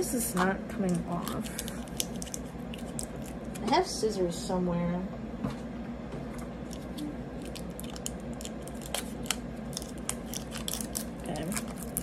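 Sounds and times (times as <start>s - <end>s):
plastic shrink-wrap crinkling: 1.1s - 3.6s, 6.7s - 12.0s.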